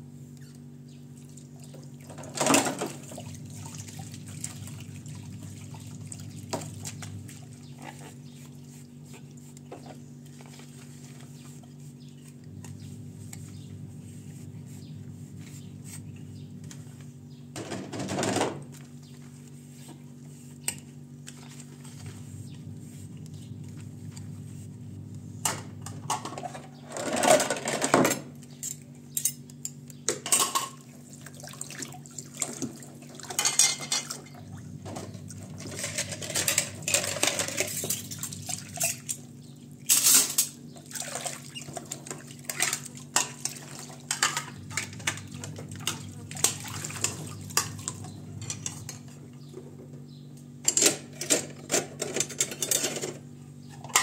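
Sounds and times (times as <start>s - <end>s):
tap water running: 1.4s - 7.6s, 39.9s - 49.1s
water splashing: 2.9s - 7.5s, 40.8s - 41.7s, 45.6s - 48.0s
dishes clinking: 30.1s - 30.8s, 33.3s - 34.4s.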